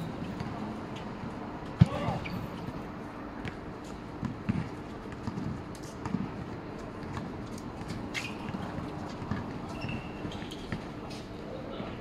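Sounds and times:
shoes squeaking: 0.0s - 11.4s
basketball bouncing on hard court: 4.2s - 6.4s, 8.4s - 10.8s.

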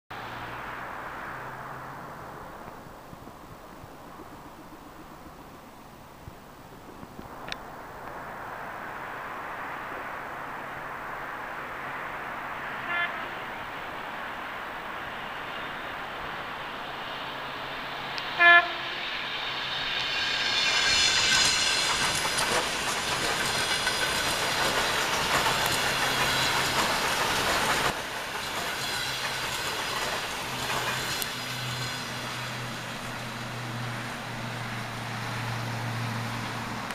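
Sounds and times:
train cars going by: 0.1s - 36.9s
train horn blast: 12.7s - 13.6s, 18.4s - 19.2s
high ringing whine: 16.5s - 22.4s.

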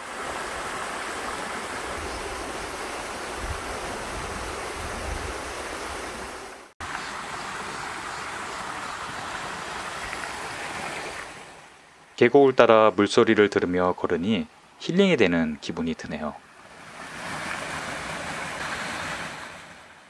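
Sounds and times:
stream rushing over rocks: 0.0s - 12.3s, 16.4s - 20.0s.

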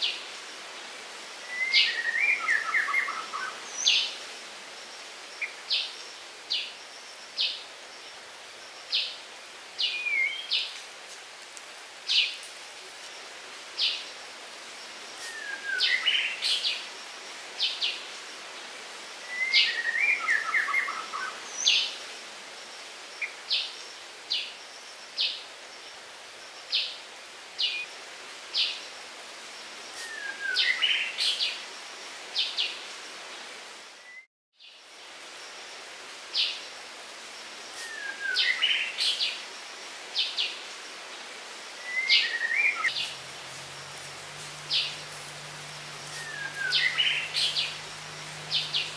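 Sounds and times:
background hiss: 0.0s - 48.9s
falling chirped bird phrases: 41.8s - 48.9s.

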